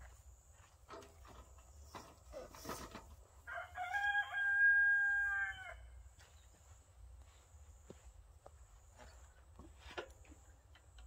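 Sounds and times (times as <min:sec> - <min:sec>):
rooster crowing: 0:03.4 - 0:06.0.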